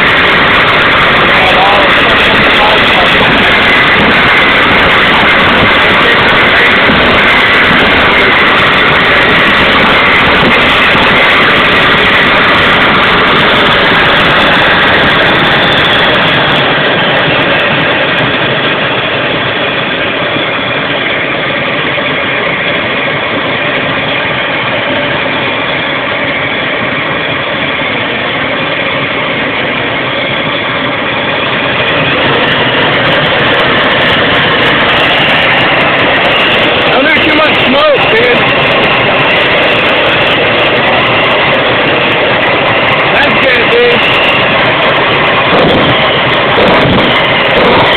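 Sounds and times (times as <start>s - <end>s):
gas turbine engine whining: 0.0s - 47.9s.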